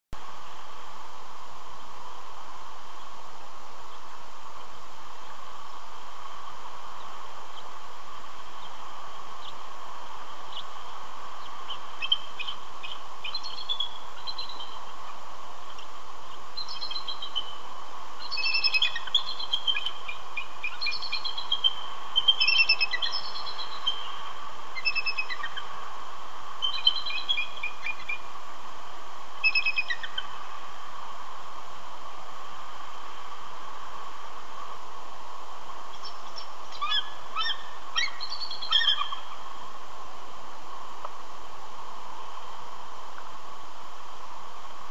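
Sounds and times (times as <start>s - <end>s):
steady hiss: 0.2s - 44.9s
eagles chittering: 18.2s - 25.9s, 29.4s - 30.5s, 35.9s - 39.5s.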